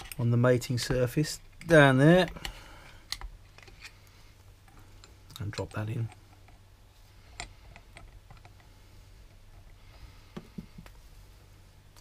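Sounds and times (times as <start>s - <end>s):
low steady hum: 0.0s - 12.0s
faint metal clicks and taps: 7.3s - 8.7s.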